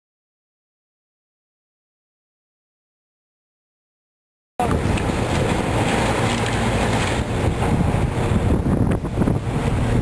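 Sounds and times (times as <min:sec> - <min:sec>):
wind buffeting microphone: 0:04.6 - 0:10.0.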